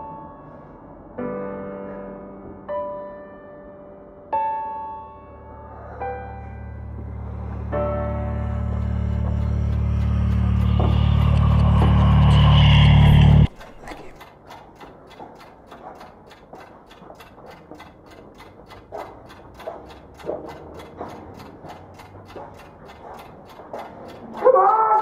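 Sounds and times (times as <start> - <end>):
mechanical ticking: 7.3 - 25.0.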